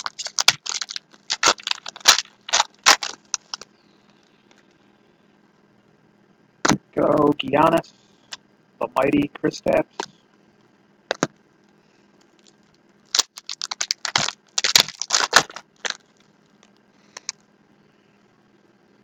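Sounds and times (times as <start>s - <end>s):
card pack wrapper crinkling: 0.0s - 3.6s, 13.1s - 16.2s.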